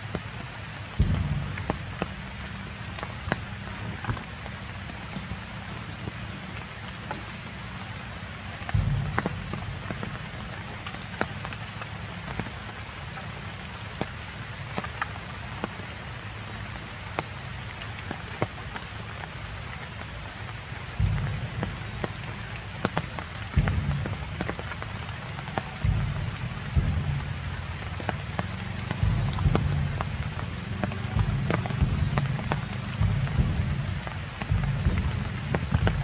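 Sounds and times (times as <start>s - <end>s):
steady rain: 0.0s - 36.0s
low rumbles: 0.7s - 13.5s, 20.6s - 36.0s.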